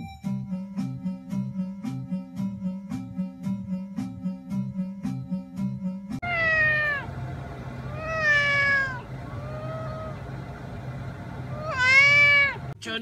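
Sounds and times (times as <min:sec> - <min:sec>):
cat meowing: 0:06.2 - 0:07.2, 0:07.8 - 0:10.3, 0:11.5 - 0:12.8.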